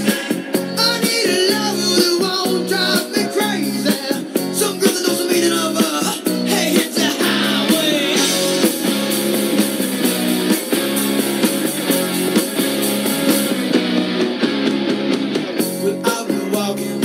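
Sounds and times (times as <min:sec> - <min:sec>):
man singing: 0:00.0 - 0:08.7, 0:15.8 - 0:17.0
guitar music with steady beat: 0:00.0 - 0:17.0.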